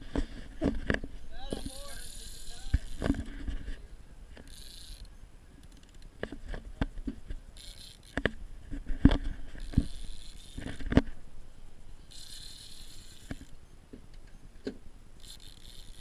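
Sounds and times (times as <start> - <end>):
fishing reel knocks and clicks: 1.5 - 3.3, 4.4 - 6.3, 7.6 - 8.4, 9.1 - 10.9, 12.1 - 13.6, 15.2 - 16.0.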